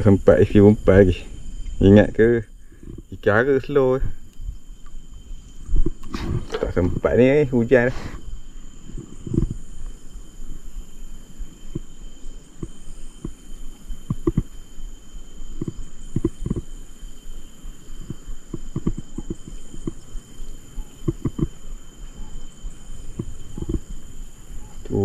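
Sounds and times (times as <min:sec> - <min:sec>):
dull thumps on microphone: 0:08.9 - 0:09.6, 0:15.6 - 0:16.7, 0:18.0 - 0:20.0, 0:21.0 - 0:21.6, 0:23.0 - 0:24.0.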